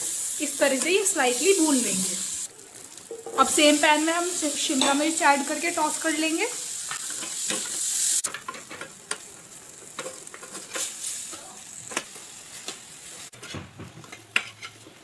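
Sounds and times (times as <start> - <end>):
vegetables sizzling: 0.0 - 13.4
spatula scraping frying pan: 12.6 - 15.0.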